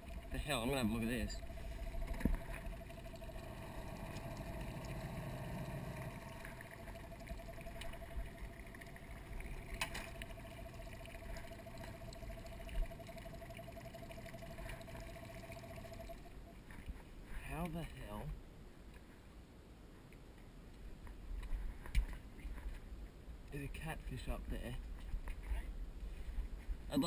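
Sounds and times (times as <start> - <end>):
outboard motor whining: 0.0 - 16.3.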